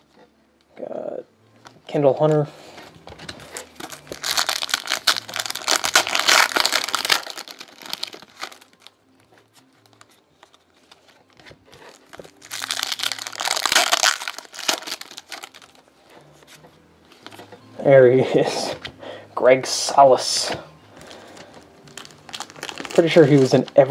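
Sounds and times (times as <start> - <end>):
foil wrappers crinkling: 3.2 - 8.9, 9.6 - 15.8, 21.0 - 23.9.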